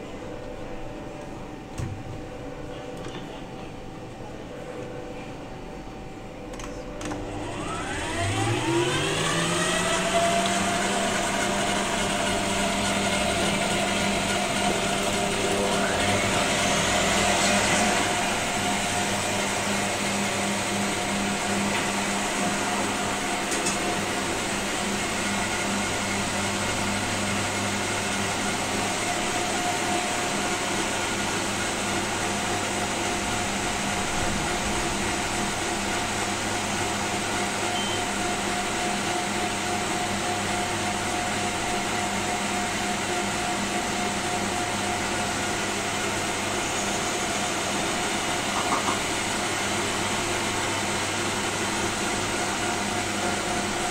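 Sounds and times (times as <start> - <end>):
electric motor whirring: 7.3 - 19.7.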